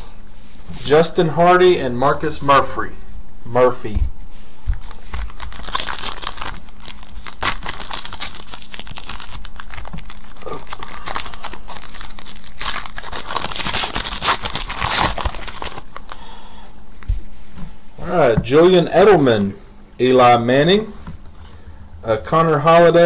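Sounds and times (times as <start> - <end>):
foil wrapper tearing and crinkling: 4.7 - 16.3.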